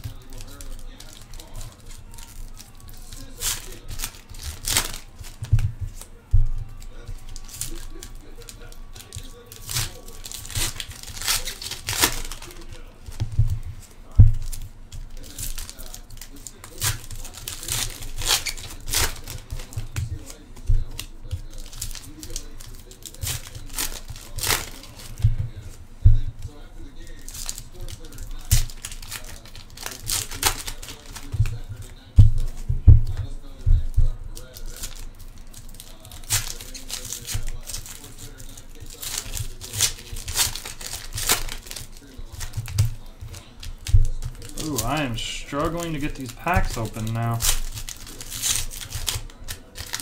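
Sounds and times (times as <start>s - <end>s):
wrappers tearing and crinkling: 0.0s - 50.0s
dull thumps: 3.9s - 7.3s, 13.0s - 15.1s, 24.5s - 26.5s, 31.3s - 34.3s.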